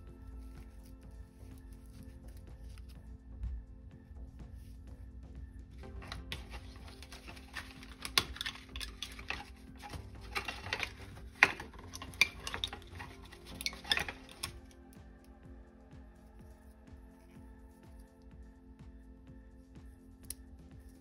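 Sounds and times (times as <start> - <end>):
soft background music: 0.0 - 21.0
card crinkling: 5.8 - 14.7.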